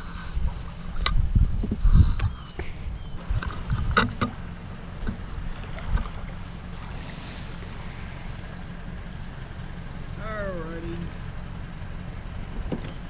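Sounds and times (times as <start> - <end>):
wind rumbling on microphone: 0.0 - 10.2
small knocks: 12.6 - 13.0.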